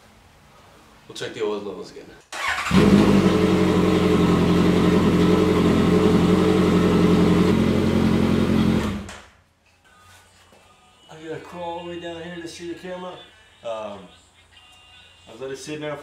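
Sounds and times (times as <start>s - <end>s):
motorcycle engine idling: 2.7s - 9.1s.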